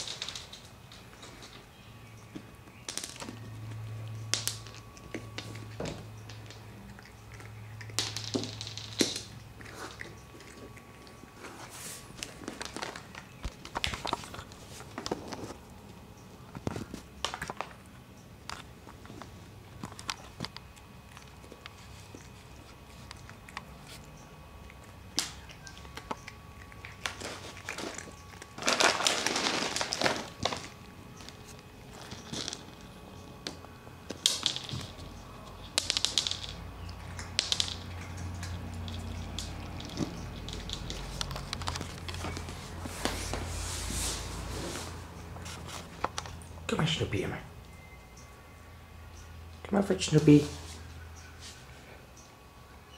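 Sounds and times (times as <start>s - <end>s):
cats crunching dry kibble: 0.0s - 47.3s
clicks on a hard floor: 33.5s - 43.4s.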